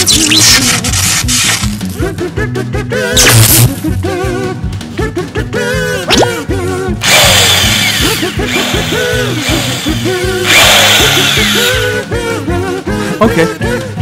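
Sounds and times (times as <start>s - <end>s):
background music with beat: 1.6s - 14.0s
toy power drill whirring: 7.0s - 11.9s.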